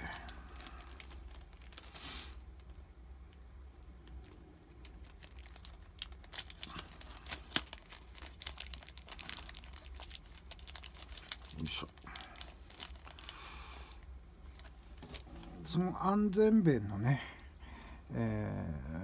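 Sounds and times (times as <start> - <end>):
plastic bag crinkling: 0.0 - 2.7, 3.7 - 15.7.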